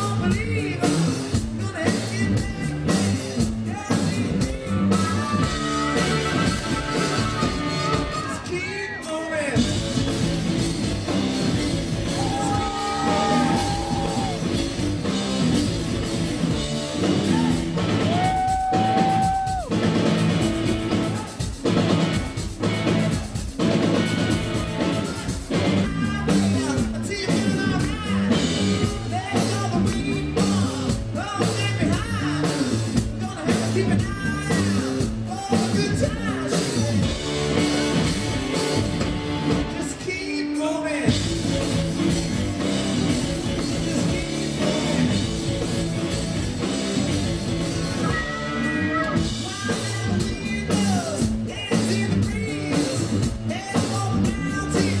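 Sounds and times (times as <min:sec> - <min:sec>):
man singing: 0:00.0 - 0:10.2, 0:12.0 - 0:15.2, 0:17.0 - 0:19.6, 0:24.9 - 0:37.6, 0:39.7 - 0:45.9, 0:47.8 - 0:55.0
drum kit: 0:00.0 - 0:55.0
electric guitar: 0:00.0 - 0:55.0.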